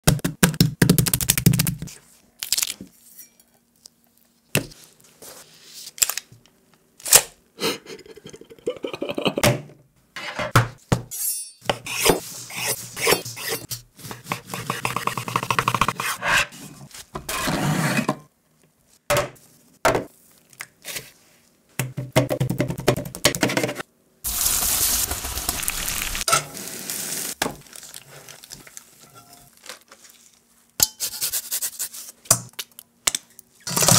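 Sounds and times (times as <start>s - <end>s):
frying sizzle: 24.3s - 29.1s.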